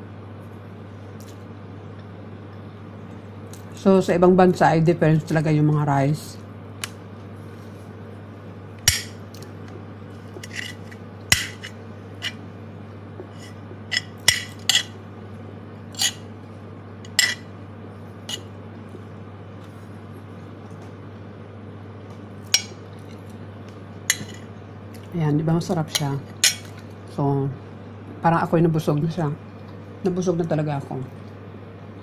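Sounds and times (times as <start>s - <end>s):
steady low hum: 0.0s - 32.0s
metal spoon clinking on plate: 17.1s - 17.4s.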